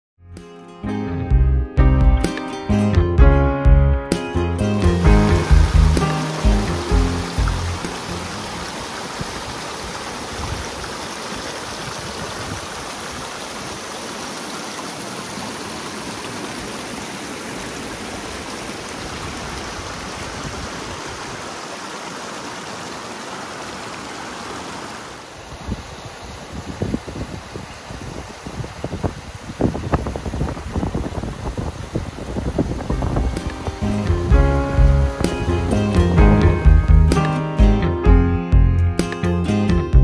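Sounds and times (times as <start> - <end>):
stream rushing over rocks: 4.9 - 36.0
wind buffeting microphone: 8.6 - 11.0, 11.6 - 13.4, 19.1 - 21.5, 25.4 - 35.8.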